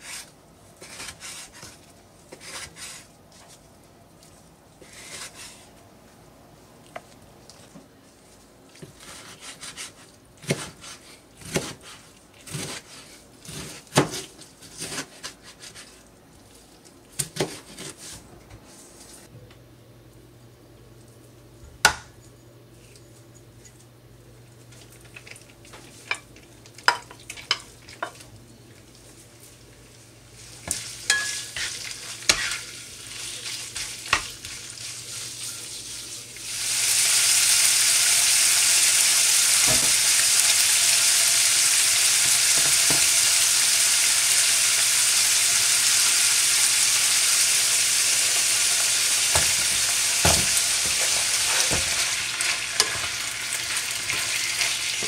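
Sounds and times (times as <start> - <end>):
pork sizzling in a pan: 30.4 - 55.0.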